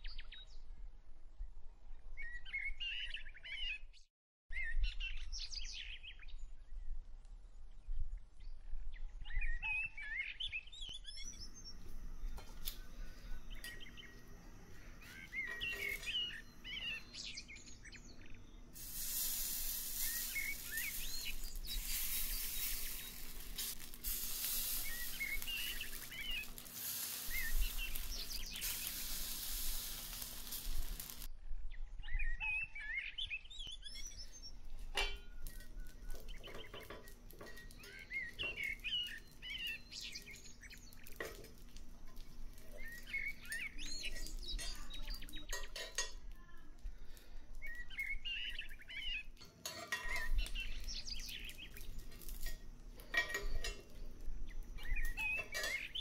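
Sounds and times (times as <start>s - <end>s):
birds chirping: 9.3s - 31.3s, 32.0s - 56.0s
batter sizzling in a pan: 11.4s - 31.3s, 34.1s - 56.0s
metal spatula scraping a pan: 14.7s - 17.0s, 18.8s - 31.3s, 34.8s - 39.0s, 49.4s - 54.2s, 55.0s - 56.0s.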